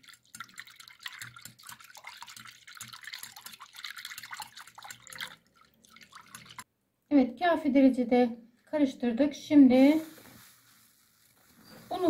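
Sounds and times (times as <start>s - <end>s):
whisk beating eggs: 0.0s - 5.4s, 6.0s - 6.6s.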